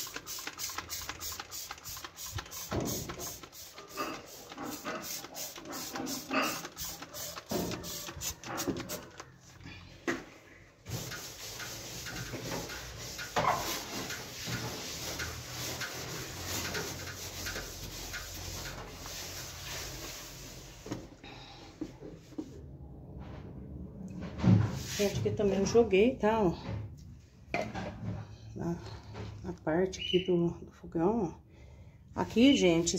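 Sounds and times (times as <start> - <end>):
cleaning pad scrubbing metal: 0.0 - 9.4, 10.9 - 20.8.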